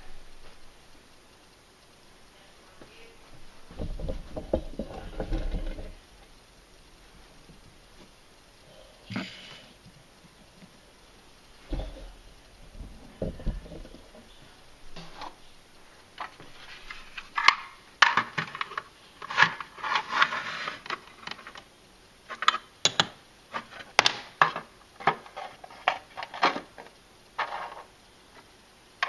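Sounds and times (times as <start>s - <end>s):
rustling: 2.6s - 21.7s.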